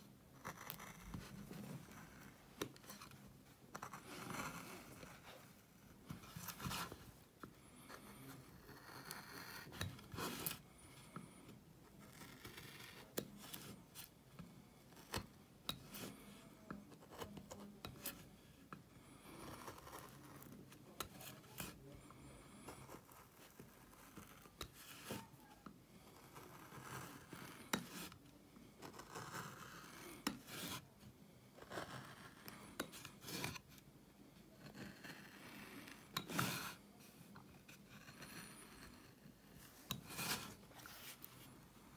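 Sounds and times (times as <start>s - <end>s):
gouge scraping wood: 0.4s - 7.1s, 26.2s - 28.2s, 34.6s - 36.8s, 37.7s - 41.6s.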